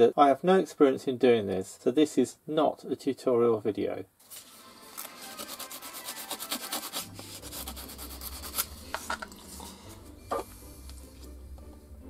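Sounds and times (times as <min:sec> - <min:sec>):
sandpaper scratching metal tube: 0:04.9 - 0:09.2.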